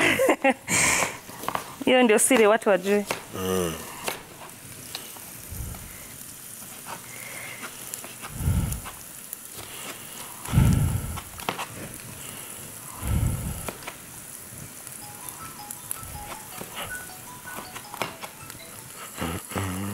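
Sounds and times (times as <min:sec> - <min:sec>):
oil sizzling in a pan: 0:00.0 - 0:19.9.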